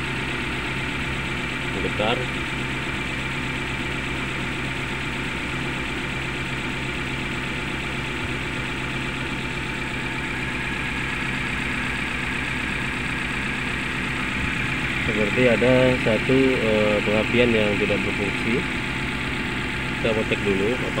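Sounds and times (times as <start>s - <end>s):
car engine idling rough: 0.0s - 21.0s.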